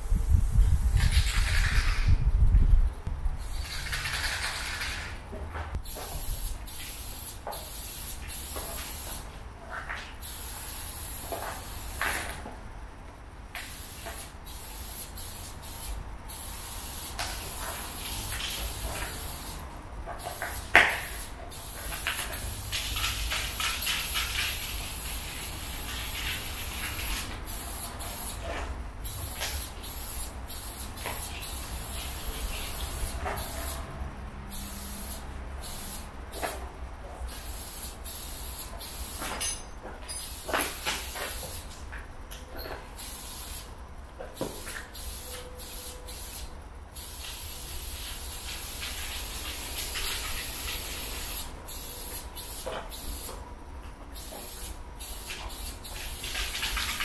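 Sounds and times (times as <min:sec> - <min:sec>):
aerosol spray can hissing: 0:29.0 - 0:33.8, 0:34.5 - 0:36.6, 0:44.5 - 0:53.4, 0:54.2 - 0:57.0.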